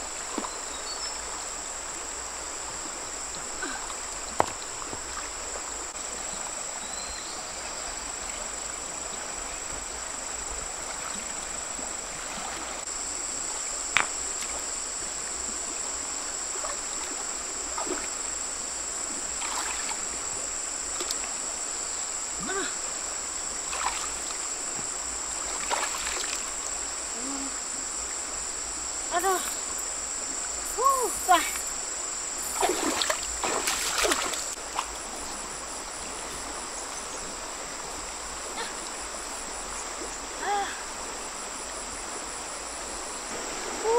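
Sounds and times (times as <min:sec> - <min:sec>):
insects buzzing: 0:00.0 - 0:43.9
shallow stream flowing: 0:00.0 - 0:43.9
small splashes in water: 0:16.6 - 0:18.1, 0:19.4 - 0:20.1, 0:23.6 - 0:24.4, 0:25.4 - 0:26.5, 0:32.4 - 0:35.1.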